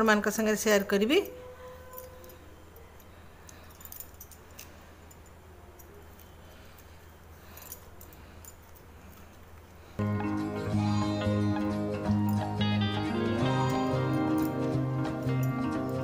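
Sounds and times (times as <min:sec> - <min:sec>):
music: 0:10.0 - 0:16.0.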